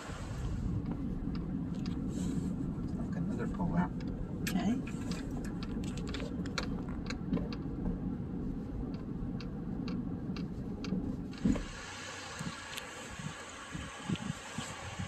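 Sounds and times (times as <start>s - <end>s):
car tyres and engine rumble: 0.0s - 15.0s
wind buffeting microphone: 0.0s - 15.0s
light irregular clicks: 0.8s - 11.7s.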